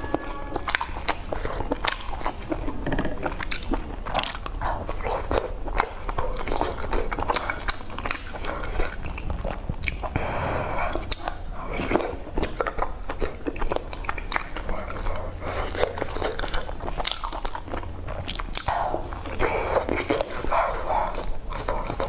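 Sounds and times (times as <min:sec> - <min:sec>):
person chewing food: 0:00.0 - 0:22.0.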